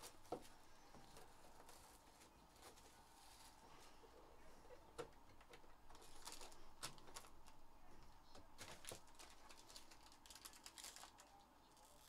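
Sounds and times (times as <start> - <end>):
foil pack crinkling and tearing: 6.0 - 7.4, 8.6 - 12.0.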